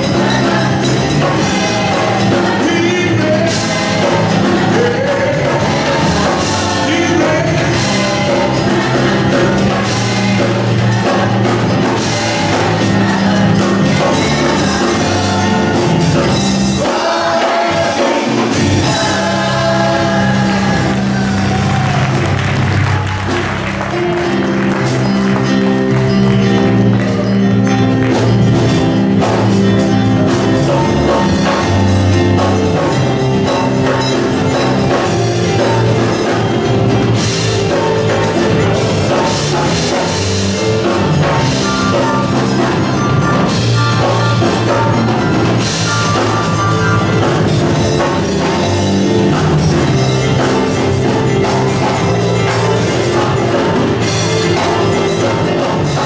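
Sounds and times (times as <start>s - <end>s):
choir singing: 0.0s - 22.4s
band playing sustained chords: 0.0s - 56.0s
steady drum beat: 0.0s - 56.0s.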